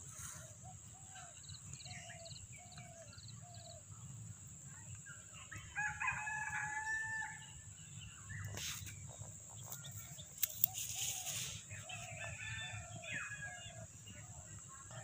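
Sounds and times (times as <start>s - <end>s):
rooster crowing: 5.7s - 7.4s
rustling in dry leaves: 9.6s - 12.6s.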